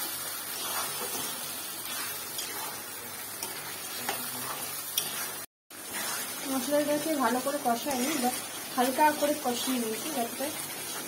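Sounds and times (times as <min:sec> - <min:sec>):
spice paste sizzling in a pan: 0:00.0 - 0:11.0
spatula scraping pan: 0:00.5 - 0:08.4.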